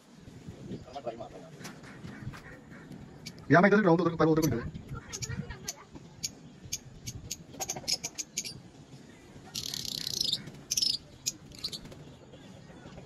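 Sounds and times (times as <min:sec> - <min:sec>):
bird chirping and chattering: 0:02.7 - 0:03.5, 0:04.1 - 0:08.6, 0:09.4 - 0:12.5.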